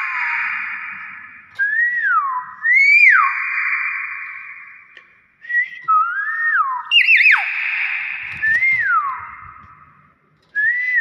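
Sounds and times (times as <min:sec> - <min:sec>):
myna bird whistling calls: 0:06.8 - 0:09.5.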